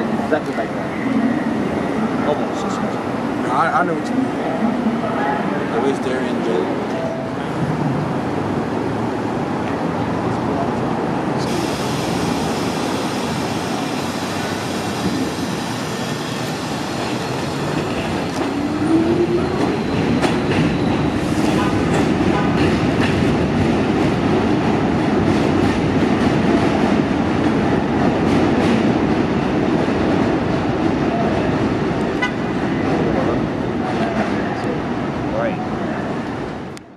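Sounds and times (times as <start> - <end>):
subway train rumble: 0.0 - 36.9
train motor whine: 11.4 - 19.8.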